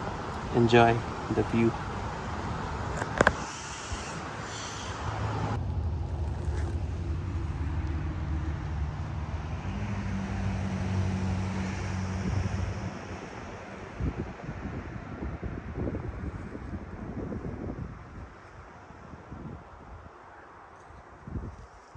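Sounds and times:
vehicle engine humming: 0.0 - 14.0
wind on microphone: 11.6 - 20.2, 20.8 - 21.9.

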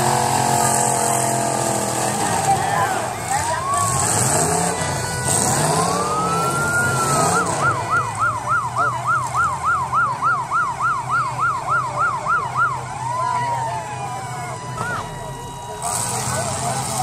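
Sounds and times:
car engines running: 0.0 - 17.0
electronic siren wailing and yelping: 2.5 - 17.0.

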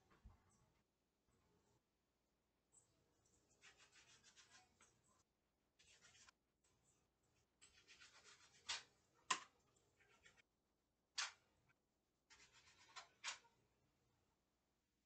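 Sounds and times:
hands scraping on counter: 12.3 - 13.4.

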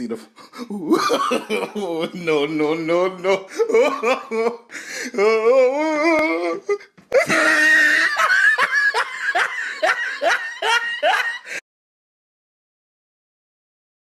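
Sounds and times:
person laughing hard: 0.6 - 11.6.

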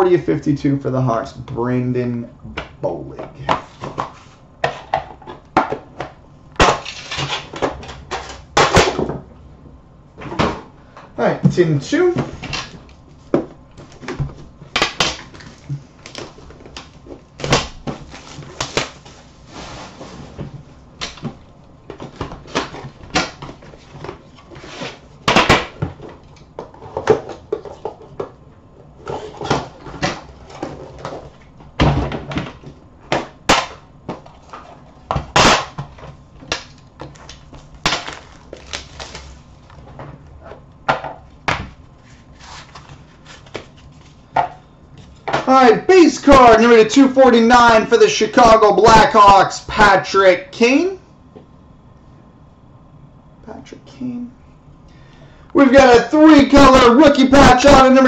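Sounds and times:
plastic wrap crinkling: 36.7 - 39.8.

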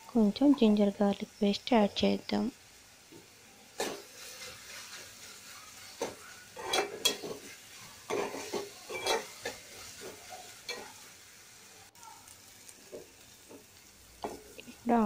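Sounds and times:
onions sizzling in oil: 0.0 - 15.0
spoon scraping a metal pot: 3.8 - 5.0, 5.8 - 10.9.

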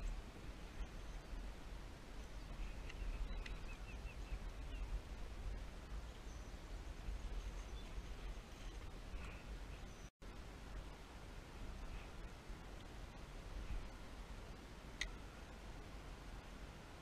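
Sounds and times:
bird chirping: 2.2 - 5.0, 6.1 - 10.1.

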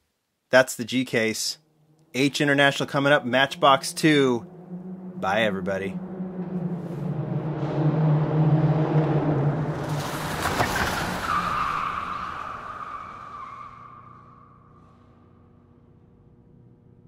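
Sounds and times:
car engine: 1.4 - 17.0
high whine falling in pitch: 1.6 - 9.8.

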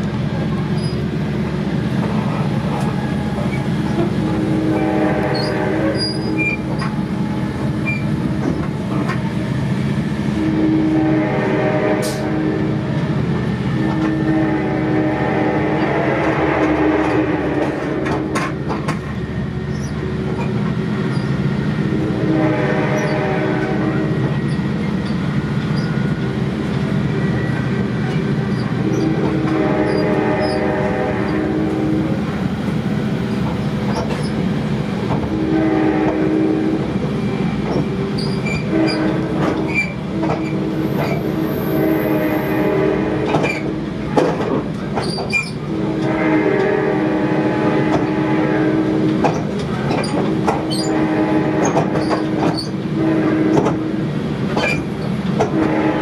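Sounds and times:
train wheels rumbling on rails: 0.0 - 56.0
locomotive horn blasts: 2.9 - 8.6, 10.2 - 18.8, 21.8 - 24.5, 28.2 - 32.3, 35.1 - 44.6, 45.5 - 54.1, 55.4 - 56.0.

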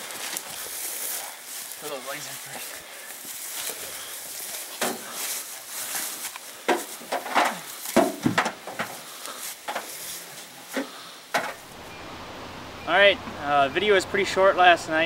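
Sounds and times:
bumps and knocks in truck bed: 6.7 - 9.0, 10.8 - 11.6.

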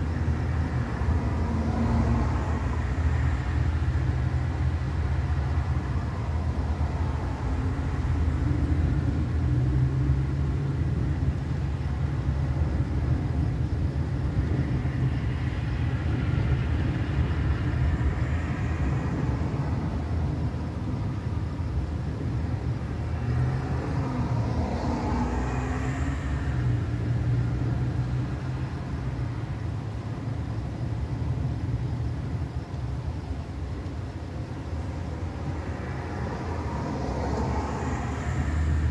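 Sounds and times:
road vehicles passing: 0.0 - 38.9
steady low rumble: 0.0 - 38.9.

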